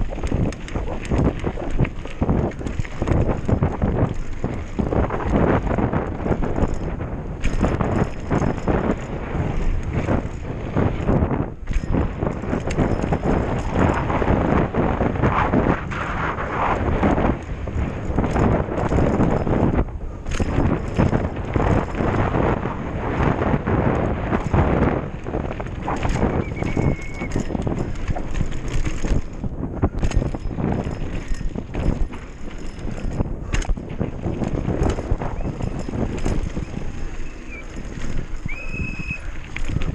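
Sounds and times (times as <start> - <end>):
bike clattering over bumps: 0.0 - 16.0, 16.7 - 39.9
bike tyres on dirt: 0.0 - 39.9
tyres on dirt: 23.1 - 39.9
high squeal: 26.3 - 27.4, 36.6 - 37.8, 38.4 - 39.3.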